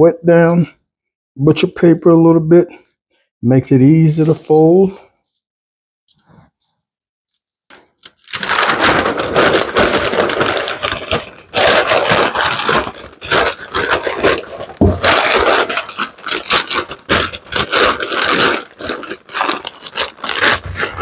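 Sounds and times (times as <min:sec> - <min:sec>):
paper rustling and crinkling: 0:07.8 - 0:21.0.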